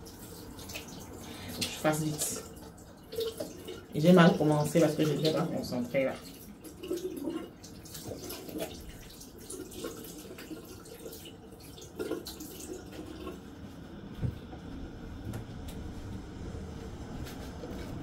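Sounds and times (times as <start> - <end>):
small drips and clicks: 0.0 - 13.8
water running in a sink: 0.0 - 14.8.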